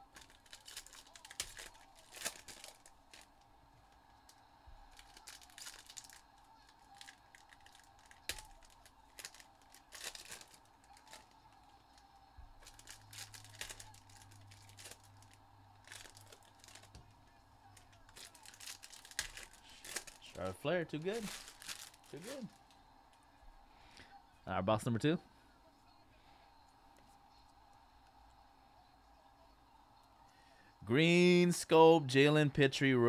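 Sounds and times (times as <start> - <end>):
foil wrappers tearing and crinkling: 0.0 - 3.4, 4.2 - 17.0, 17.7 - 22.7.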